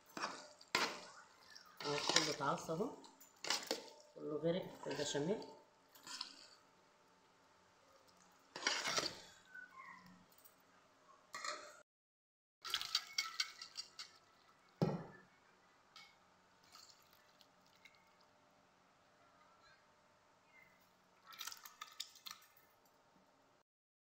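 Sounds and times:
spoon scraping a metal pot: 0.0s - 4.0s, 4.7s - 5.3s, 5.9s - 6.6s, 8.5s - 9.4s.

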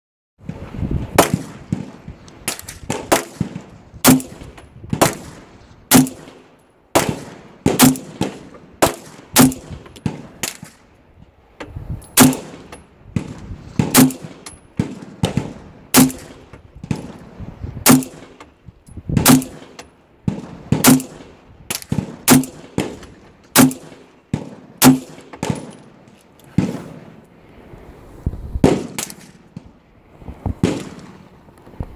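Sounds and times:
pistol shots: 1.2s - 6.4s, 7.0s - 10.8s, 12.2s - 17.2s, 17.8s - 18.4s, 19.2s - 25.9s, 28.6s - 29.7s, 30.6s - 31.2s.

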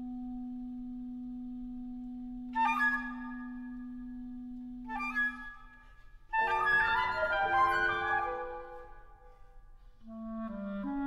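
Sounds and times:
flute high flourish: 4.9s - 9.6s.

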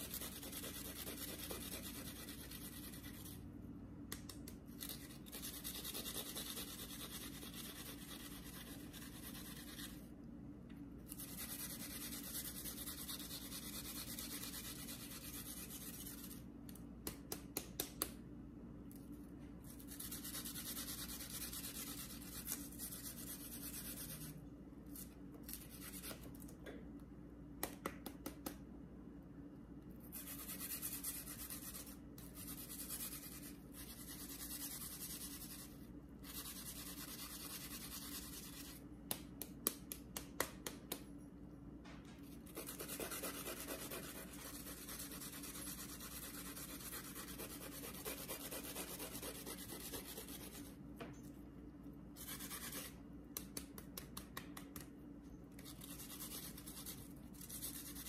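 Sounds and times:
scratching and rubbing on counter: 0.0s - 3.4s, 4.8s - 10.0s, 11.1s - 16.5s, 19.7s - 26.2s, 30.1s - 38.8s, 42.4s - 50.7s, 52.2s - 53.0s, 55.6s - 58.0s.

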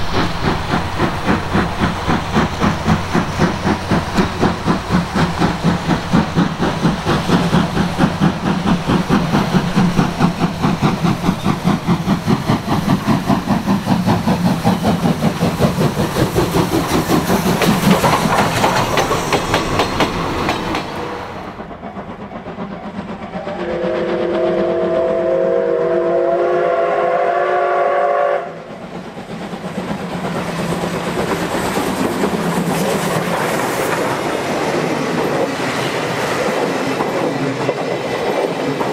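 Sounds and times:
steam locomotive exhaust chuffing: 0.0s - 38.9s
coaches clattering over rail joints: 0.1s - 21.2s
steam whistle blast: 23.4s - 28.6s.

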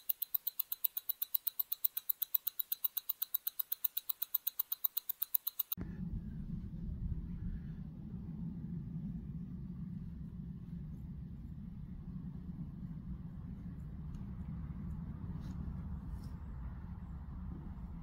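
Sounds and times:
rapid mechanical ticking: 0.0s - 5.8s
steady low rumble: 5.8s - 18.0s.

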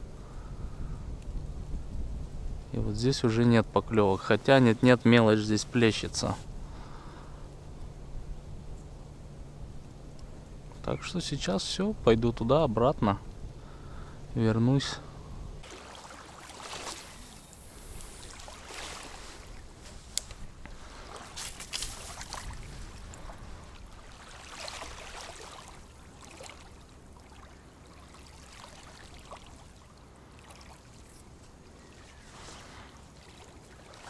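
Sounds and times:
footsteps through dry reeds and mud: 15.6s - 26.4s
small waves lapping at bank: 15.6s - 34.0s.

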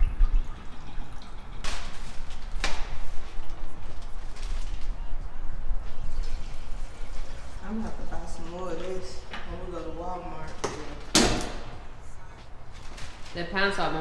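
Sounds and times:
waste water pouring and splashing: 0.0s - 9.3s.

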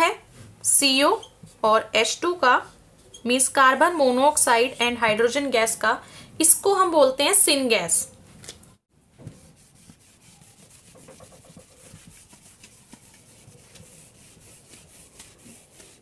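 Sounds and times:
pen scratching on paper: 9.3s - 16.0s.

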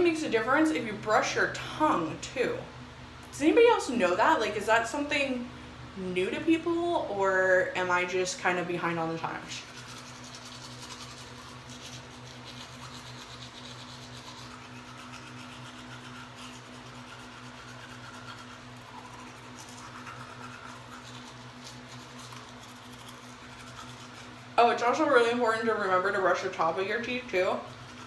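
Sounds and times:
faint low hum: 0.0s - 28.0s
toothbrush scrubbing teeth: 9.1s - 28.0s.

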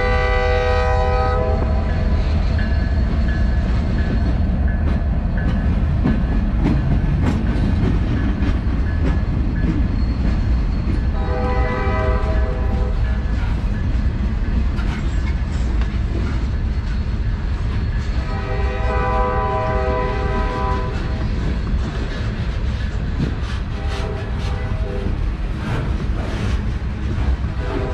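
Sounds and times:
train horn chord: 0.0s - 2.0s, 11.2s - 13.1s, 18.2s - 21.2s, 23.7s - 25.1s, 27.6s - 27.9s
freight train wheels rumbling: 0.0s - 27.9s
wheels clicking on rail joints: 1.6s - 27.9s.

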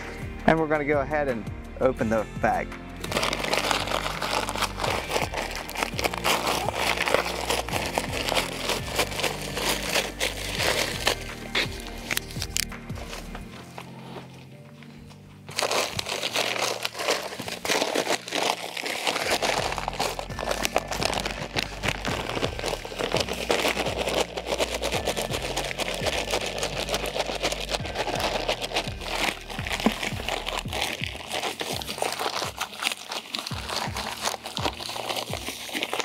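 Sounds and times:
background music: 0.0s - 36.0s
powder poured into bucket: 3.0s - 13.4s, 15.5s - 36.0s
paper bag crinkling: 3.0s - 36.0s.

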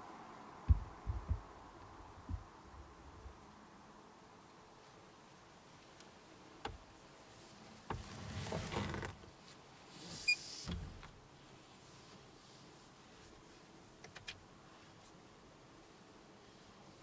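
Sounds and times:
knock: 0.7s - 1.4s.

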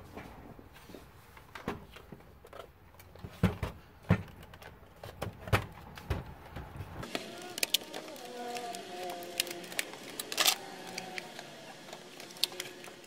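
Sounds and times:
plastic casing knocking and clattering: 3.2s - 6.7s.

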